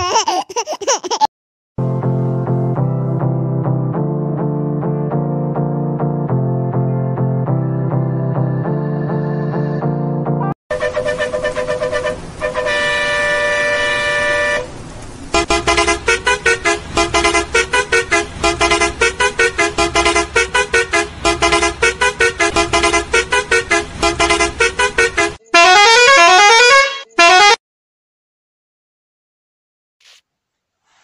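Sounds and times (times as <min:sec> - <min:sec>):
multi-tone vehicle horn: 0:10.7 - 0:27.6.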